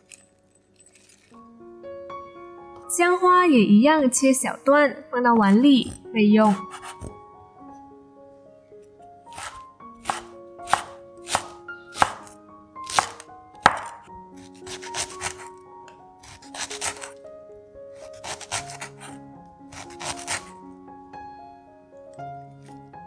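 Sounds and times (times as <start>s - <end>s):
soft piano music: 0.0s - 23.0s
knife chopping on wooden board: 5.8s - 7.2s, 9.3s - 15.5s, 16.2s - 17.2s, 18.0s - 20.5s.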